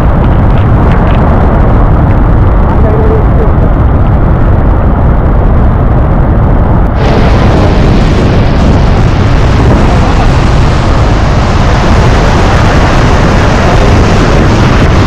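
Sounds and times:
waterfall rushing: 0:07.0 - 0:15.0.

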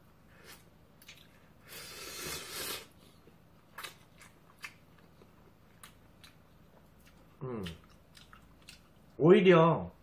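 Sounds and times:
person slurping noodles: 0:01.6 - 0:03.0
wet chewing clicks: 0:03.7 - 0:09.2.

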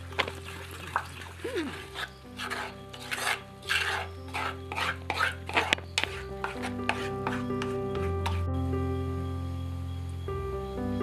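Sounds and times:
spoon scraping clay pot: 0:00.2 - 0:08.5.

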